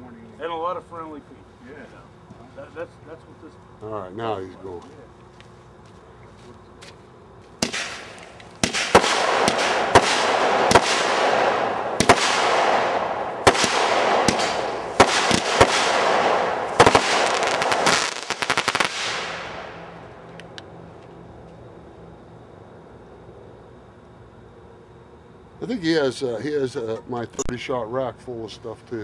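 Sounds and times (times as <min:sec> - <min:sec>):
fireworks sharp reports: 0:07.6 - 0:20.4.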